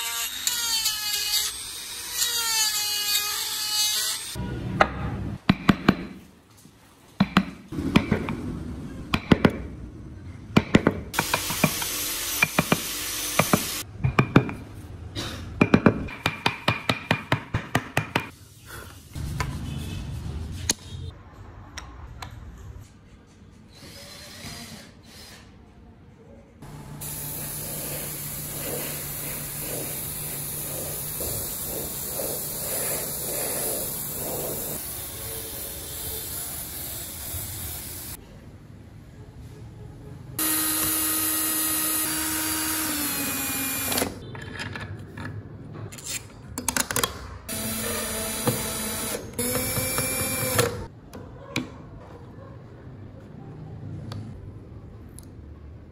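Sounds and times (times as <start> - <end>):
air hose spray nozzle hissing: 27.0 - 38.2.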